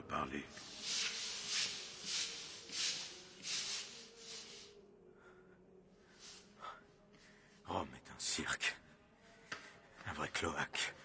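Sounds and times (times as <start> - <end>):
brushes scrubbing wet stone floor: 0.5 - 4.8.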